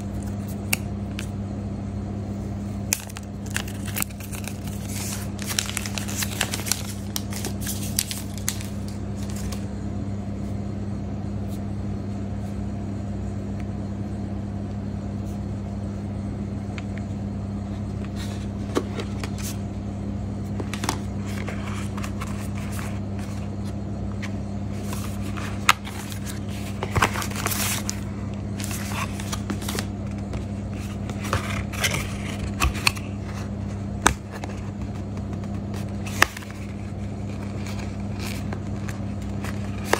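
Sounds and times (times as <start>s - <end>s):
steady low hum: 0.0s - 39.9s
plastic film crackling: 2.9s - 9.6s
cardboard and paper packaging handled: 2.9s - 9.7s, 17.8s - 19.6s, 20.4s - 39.9s.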